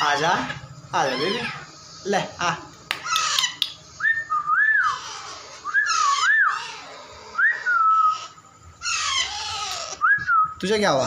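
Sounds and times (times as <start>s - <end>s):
parakeet harsh calls: 0.0s - 4.0s, 4.7s - 10.0s
parakeet whistles: 3.0s - 11.0s.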